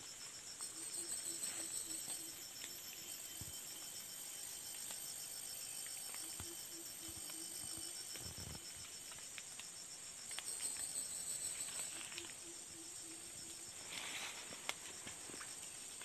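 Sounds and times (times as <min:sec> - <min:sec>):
insect high buzz: 0:00.0 - 0:16.0
insect pulsing trill: 0:00.0 - 0:16.0
small clicks and rustles: 0:07.2 - 0:12.4, 0:13.8 - 0:16.0.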